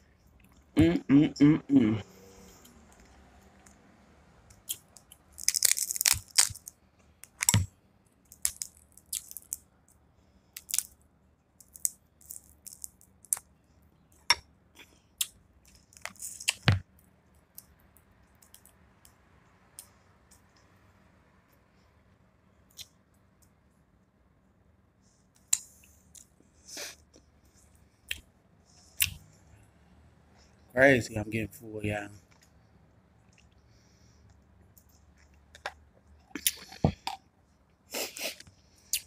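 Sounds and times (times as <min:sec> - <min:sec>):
shellfish peeled and chewed: 0:04.5 - 0:11.0, 0:11.6 - 0:13.5, 0:34.2 - 0:37.3.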